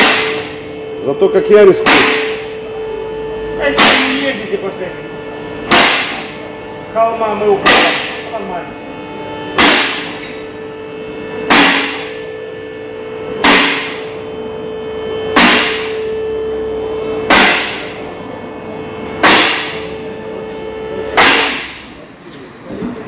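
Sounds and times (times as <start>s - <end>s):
hammer striking metal: 0.0s - 0.6s, 1.7s - 2.6s, 3.6s - 4.4s, 5.7s - 6.4s, 7.6s - 8.4s, 9.5s - 10.5s, 11.4s - 12.2s, 13.4s - 14.2s, 15.3s - 16.1s, 17.2s - 18.0s, 19.2s - 20.0s, 21.0s - 21.9s
steady hum: 0.0s - 23.0s.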